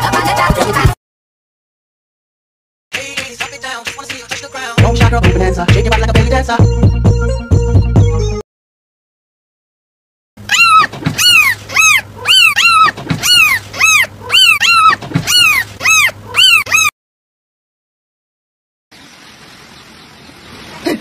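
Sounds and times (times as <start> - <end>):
high-pitched animal cries: 10.4 - 17.0.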